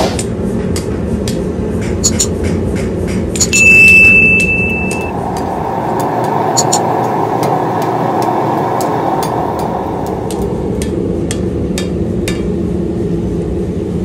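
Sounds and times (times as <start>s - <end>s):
notification ding: 3.4s - 5.1s
forge burner rushing: 3.6s - 11.3s.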